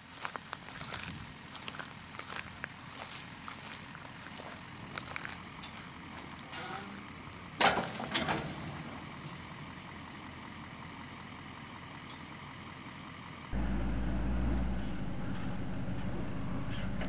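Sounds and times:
low engine hum: 0:00.0 - 0:17.0
metal clanks: 0:05.5 - 0:09.1.

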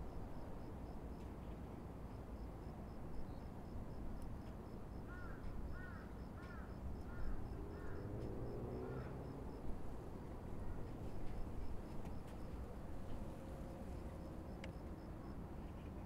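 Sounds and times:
distant city hum: 0:00.0 - 0:16.0
wind: 0:00.0 - 0:16.0.

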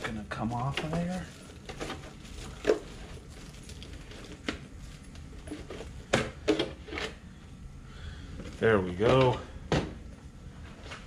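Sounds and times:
plastic wrap crinkling: 0:00.0 - 0:06.1.

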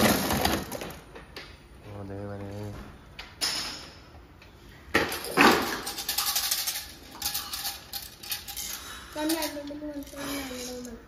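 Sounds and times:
plastic toys clattering: 0:00.0 - 0:01.1, 0:05.0 - 0:11.0.

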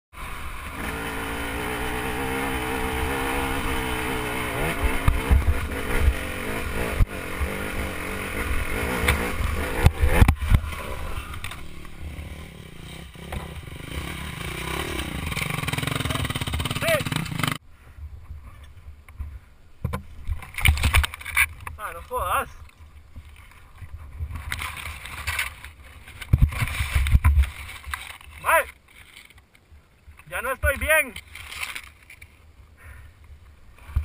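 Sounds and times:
motorcycle engine revving: 0:00.2 - 0:17.6.

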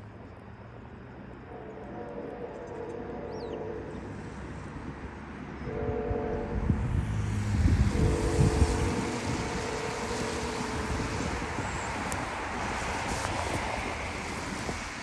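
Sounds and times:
held horn-like chord: 0:01.5 - 0:04.1, 0:07.9 - 0:11.0
wind buffeting microphone: 0:01.9 - 0:15.0.

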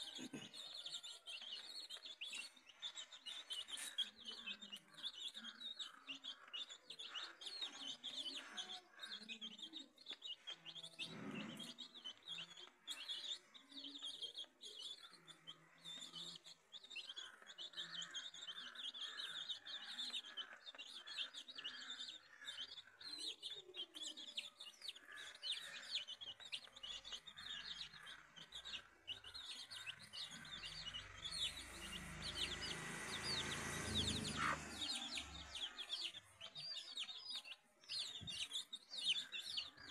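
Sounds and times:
chicks peeping: 0:00.0 - 0:39.9
hen clucking: 0:25.0 - 0:36.4.

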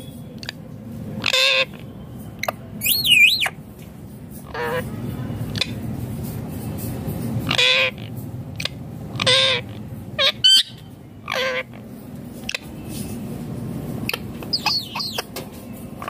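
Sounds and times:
parakeet calls: 0:01.2 - 0:03.6, 0:04.4 - 0:04.9, 0:07.4 - 0:12.7, 0:14.0 - 0:15.3
parakeet shrill screeches: 0:01.2 - 0:03.6, 0:04.4 - 0:04.8, 0:07.4 - 0:08.1, 0:09.1 - 0:11.8, 0:14.1 - 0:15.3
high chirps: 0:02.2 - 0:03.6, 0:14.1 - 0:15.3.

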